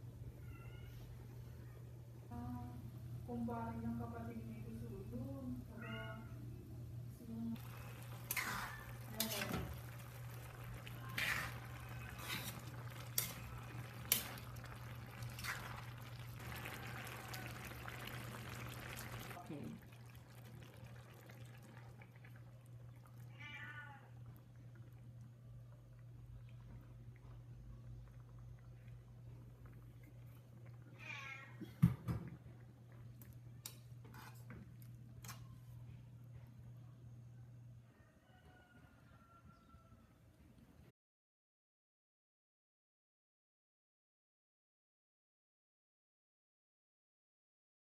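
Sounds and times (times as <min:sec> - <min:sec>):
pot bubbling: 0:07.6 - 0:35.9.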